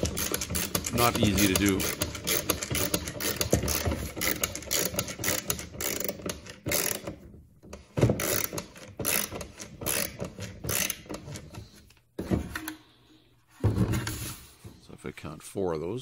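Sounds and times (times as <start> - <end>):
ratcheting clicks of screw turning: 0.0 - 11.6.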